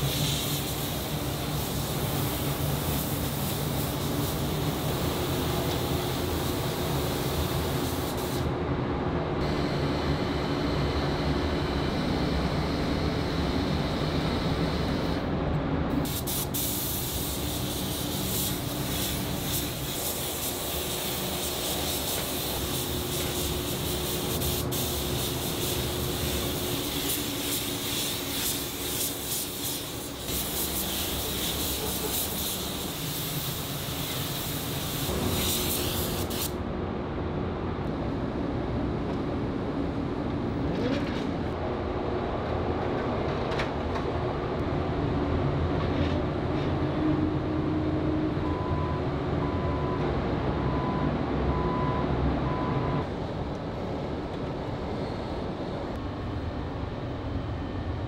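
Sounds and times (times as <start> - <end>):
spray gun hissing: 0.0 - 8.5, 16.0 - 36.6
low machine hum: 8.5 - 16.1, 36.6 - 58.0.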